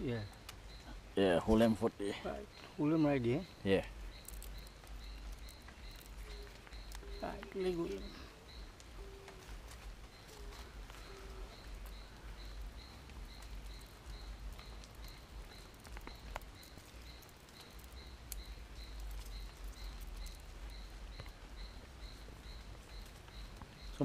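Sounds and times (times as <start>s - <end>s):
faint high chirp: 2.2s - 9.4s
clicks and rustles in leaves: 2.4s - 24.0s.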